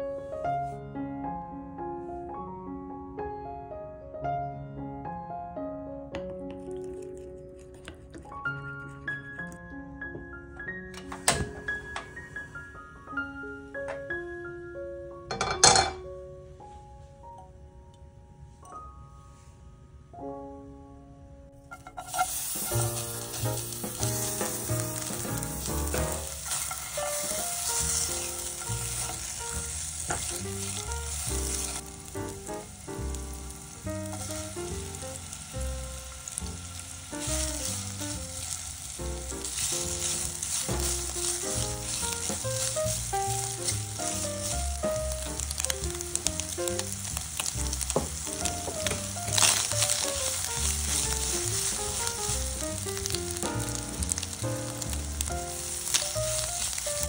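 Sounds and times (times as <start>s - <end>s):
background music: 0.0s - 57.0s
food sizzling in a frying pan: 21.7s - 57.0s.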